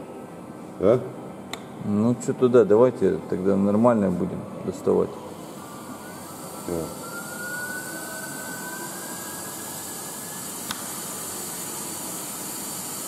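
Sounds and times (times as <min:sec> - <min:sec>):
faint rising whistle: 0:05.5 - 0:11.7
sharp click: 0:10.7 - 0:10.9.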